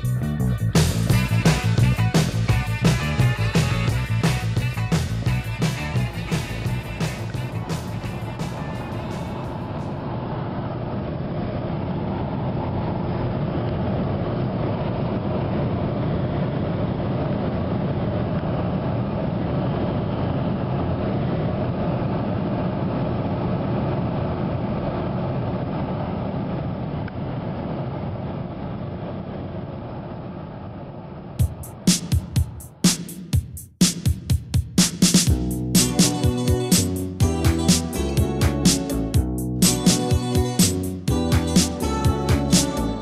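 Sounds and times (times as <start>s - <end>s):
vehicle road and engine noise: 0.0s - 31.9s.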